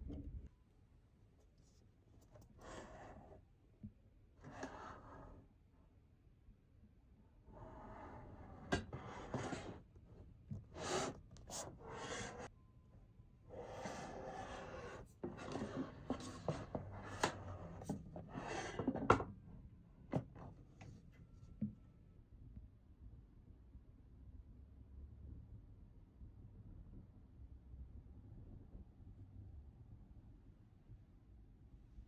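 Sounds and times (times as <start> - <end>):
computer case rubbing and scraping: 2.5 - 3.3, 4.4 - 5.4, 7.6 - 9.9, 10.6 - 12.5, 13.6 - 19.2.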